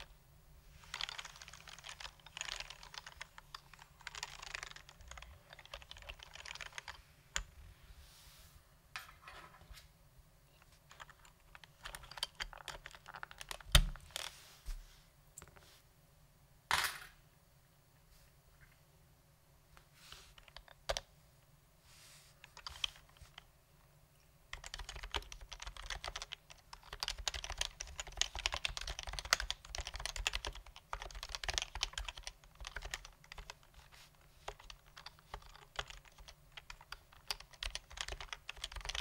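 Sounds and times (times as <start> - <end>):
keyboard typing: 0.8 - 7.5, 10.9 - 14.2, 20.4 - 21.1, 22.4 - 23.5, 24.5 - 39.0.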